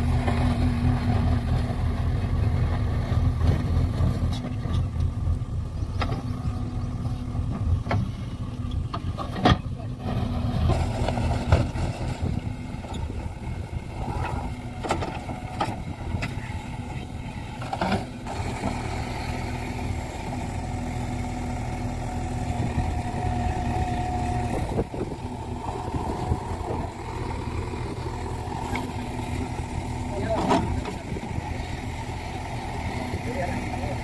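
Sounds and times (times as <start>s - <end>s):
diesel engine under load: 0.0s - 34.0s.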